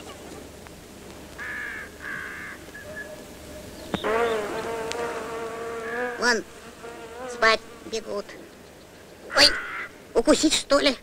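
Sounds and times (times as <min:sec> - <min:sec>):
cartoon insect buzzing: 0:04.0 - 0:08.2.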